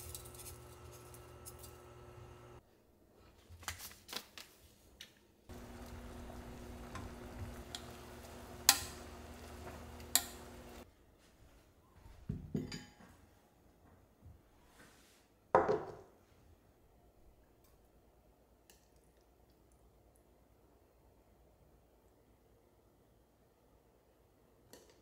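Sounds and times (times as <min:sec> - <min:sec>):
steady low hum: 0:00.2 - 0:02.6, 0:05.5 - 0:10.8.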